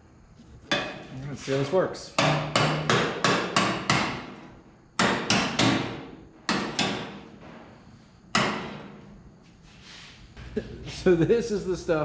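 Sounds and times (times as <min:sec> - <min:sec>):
hammer striking sheet metal: 0:02.2 - 0:04.4, 0:05.0 - 0:07.3, 0:08.3 - 0:09.0.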